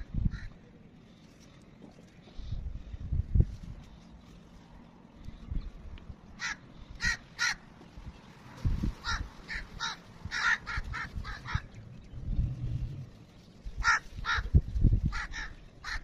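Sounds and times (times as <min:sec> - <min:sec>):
crows cawing: 0:06.4 - 0:07.7, 0:09.0 - 0:11.7, 0:13.8 - 0:16.0.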